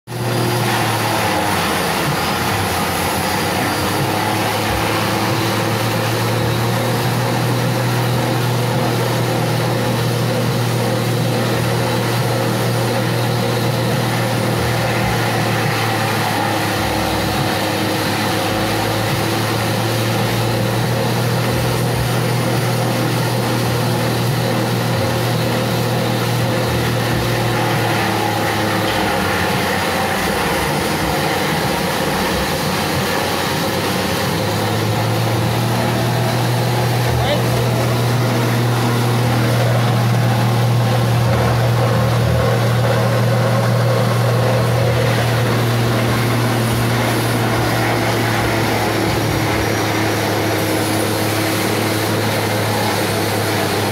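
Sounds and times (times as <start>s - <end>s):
forage chopper drone: 0.0s - 53.9s.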